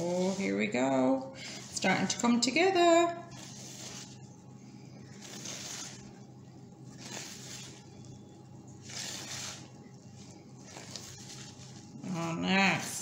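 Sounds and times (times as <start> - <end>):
spoon stirring wet dough: 0.0 - 2.5, 5.0 - 13.0.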